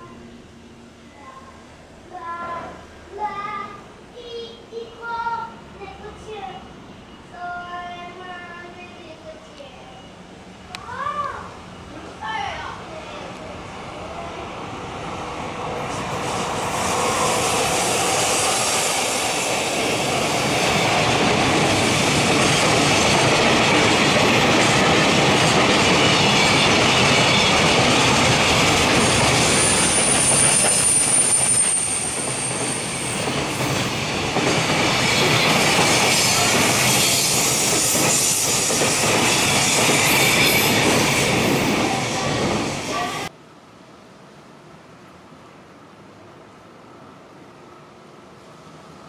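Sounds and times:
train wheels rumbling on rails: 11.6 - 43.3
high thin squeal: 29.5 - 33.3.

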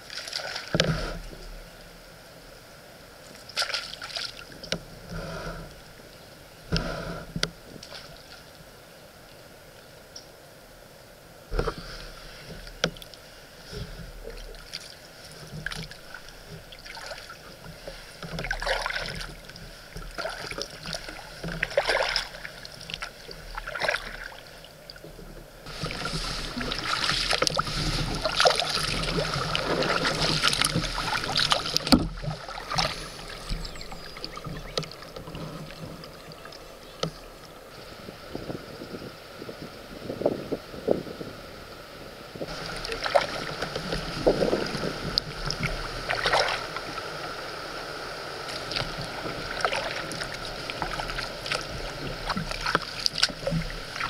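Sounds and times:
paddle strokes splashing: 0.0 - 2.1, 3.2 - 5.9, 6.7 - 8.8, 11.4 - 39.4, 42.4 - 54.0
steady rushing noise: 25.6 - 33.6.

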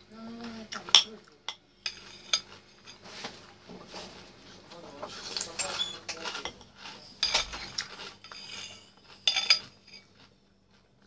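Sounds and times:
metal spoon clinking against a bowl: 0.9 - 3.0, 7.2 - 10.1.

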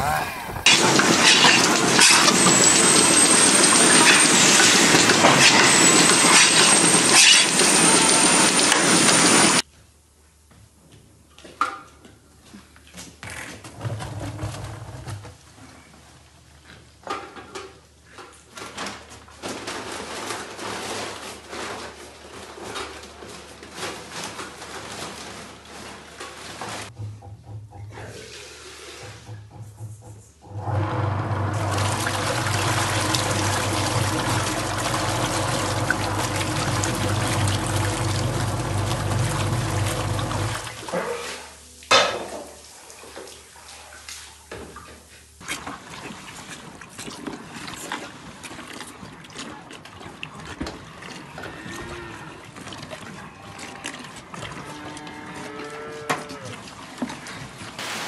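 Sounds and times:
water churning in steel tank: 0.0 - 9.6, 30.5 - 58.0.

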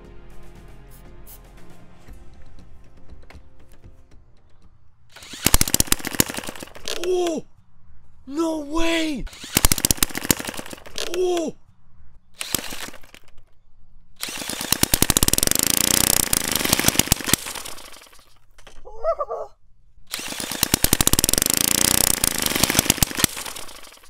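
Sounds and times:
small engine firing pops: 4.6 - 7.4, 9.3 - 11.4, 12.4 - 13.5, 14.2 - 18.8, 20.1 - 24.0.

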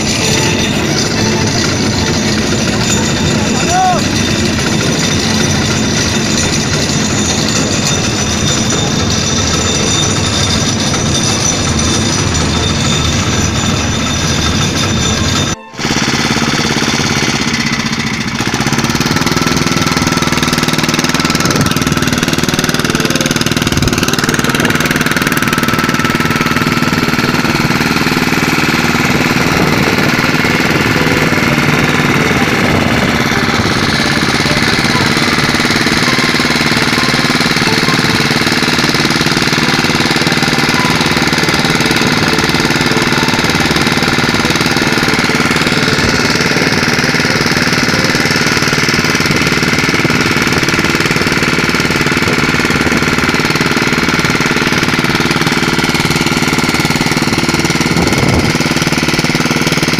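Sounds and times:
outboard motor running: 0.0 - 59.9.

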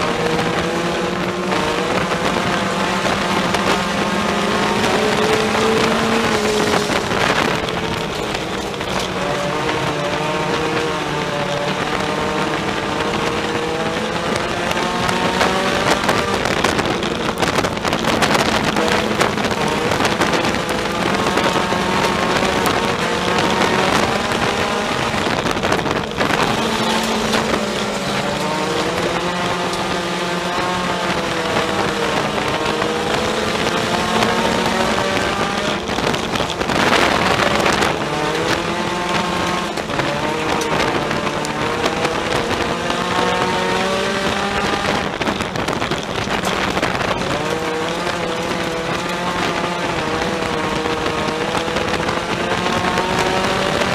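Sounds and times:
race car engine revving: 0.0 - 53.9
rush of noise: 0.0 - 53.9.

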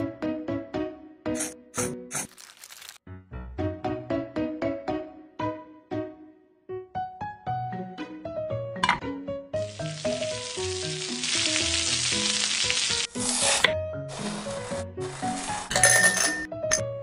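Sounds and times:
bouncy background music: 3.2 - 17.0
meat sizzling on a grill pan: 9.6 - 13.6.

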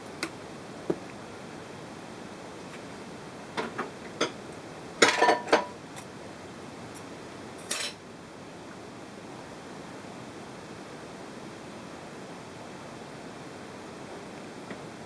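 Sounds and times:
kitchenware clinking: 5.0 - 5.8.

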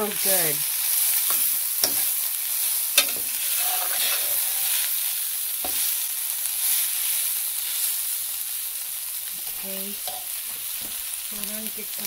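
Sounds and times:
rice sizzling in a pan: 0.0 - 12.0
spatula scraping grains: 1.2 - 6.0.

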